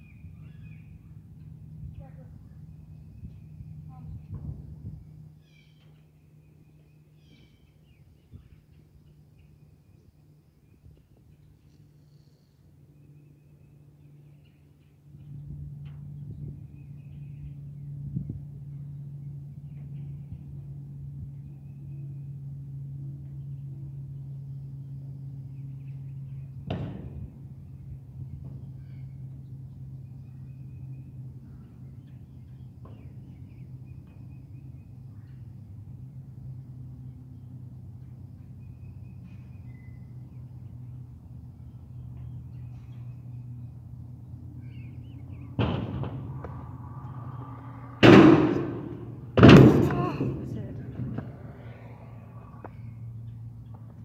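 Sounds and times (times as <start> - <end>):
low mechanical hum: 0.0 - 54.0
wheels rolling: 45.8 - 52.8.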